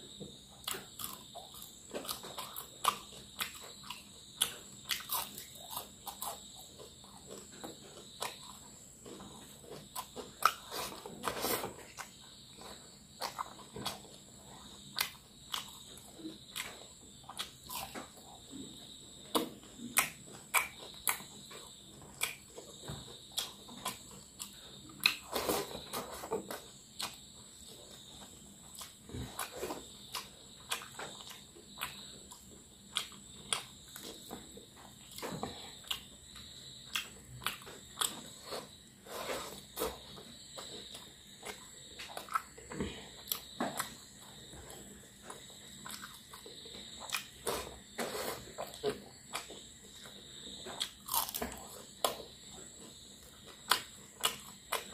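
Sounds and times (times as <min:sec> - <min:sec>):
chewing and mouth smacks: 0:39.7 - 0:54.9.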